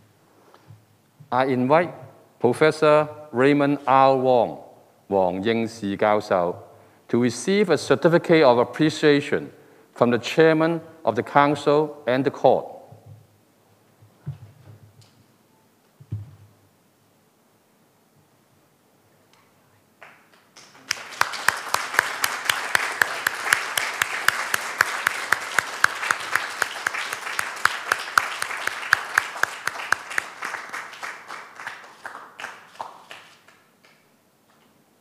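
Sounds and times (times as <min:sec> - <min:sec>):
audience applauding: 0:20.0 - 0:34.0
sharp regular claps: 0:20.0 - 0:34.2.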